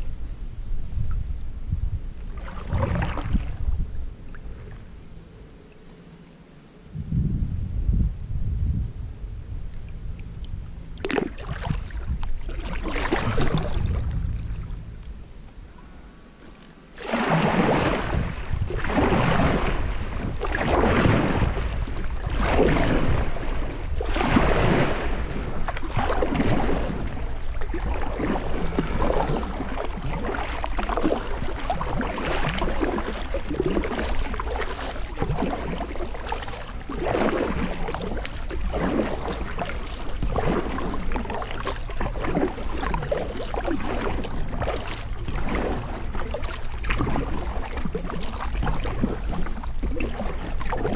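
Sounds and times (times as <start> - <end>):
low rumble: 0.0 - 32.2
paddle splashing through water: 2.2 - 4.9, 9.7 - 50.9.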